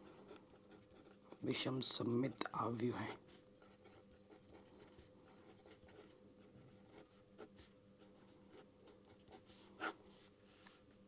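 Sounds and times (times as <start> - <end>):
scratchy handwriting strokes: 1.8 - 10.3.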